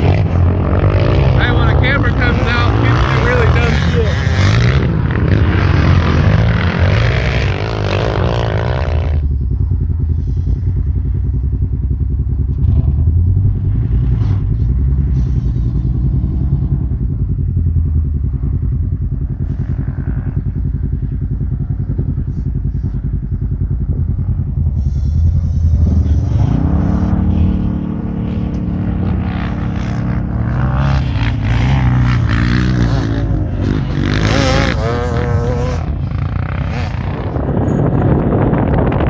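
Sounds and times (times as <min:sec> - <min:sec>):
engine revving: 0:00.0 - 0:09.4, 0:12.5 - 0:17.1, 0:24.7 - 0:39.0
vehicle engines idling: 0:00.0 - 0:39.0.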